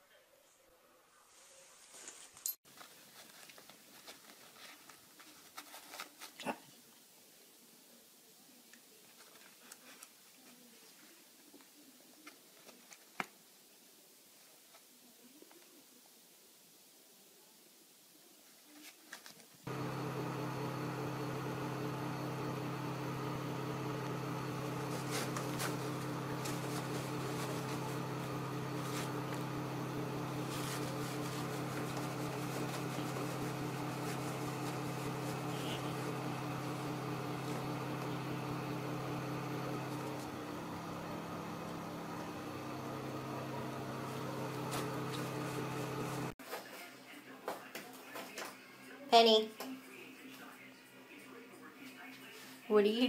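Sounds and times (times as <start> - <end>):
low mechanical hum: 19.7 - 46.4.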